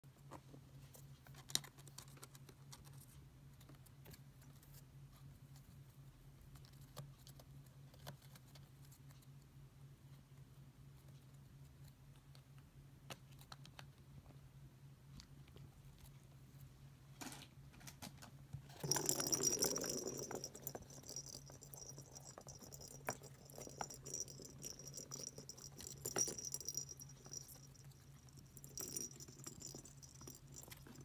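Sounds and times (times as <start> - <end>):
faint low hum: 0.0 - 31.0.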